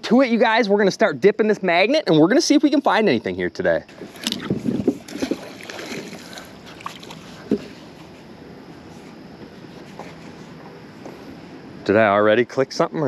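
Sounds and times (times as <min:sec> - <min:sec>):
water splashing around a kayak: 0:03.9 - 0:08.2.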